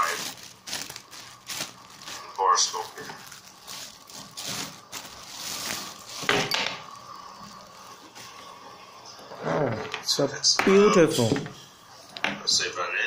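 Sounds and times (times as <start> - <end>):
plastic bag crinkling: 0.0 - 8.3.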